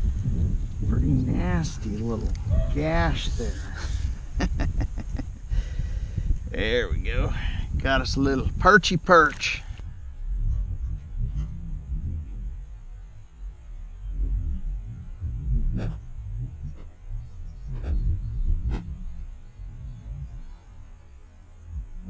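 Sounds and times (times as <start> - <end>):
kayak paddling rumble: 0.0 - 22.0.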